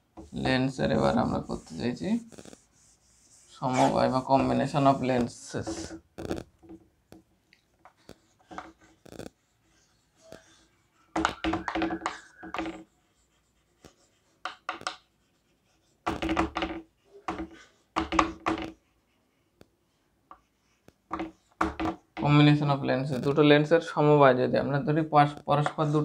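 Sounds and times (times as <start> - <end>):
chalk scratching on chalkboard: 0.2 - 6.4, 8.0 - 19.3.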